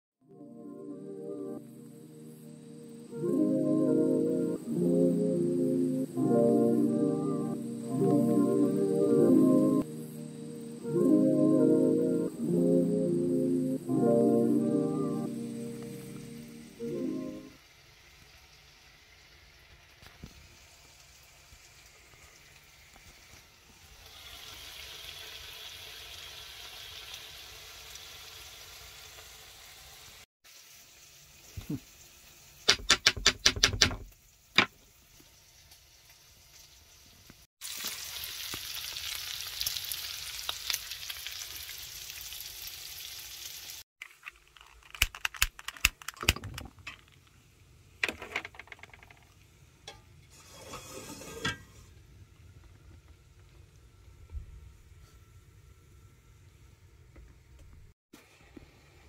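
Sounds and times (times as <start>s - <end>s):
food sizzling: 15.3s - 32.9s, 34.0s - 44.2s, 50.3s - 52.0s.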